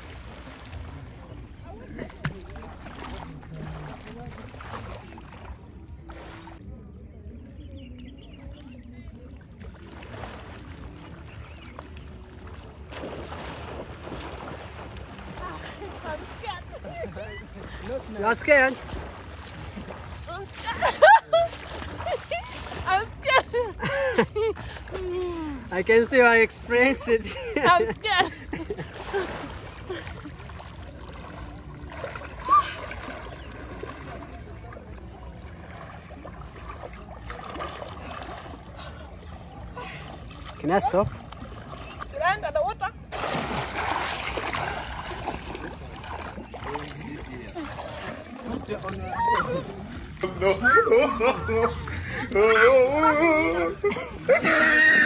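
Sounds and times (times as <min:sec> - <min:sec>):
water sloshing and splashing: 0:00.0 - 0:55.0
large splash into water: 0:43.1 - 0:45.6.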